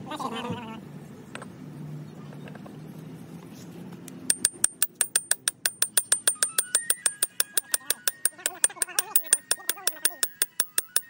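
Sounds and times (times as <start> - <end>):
hammer tapping on metal: 4.3 - 11.0.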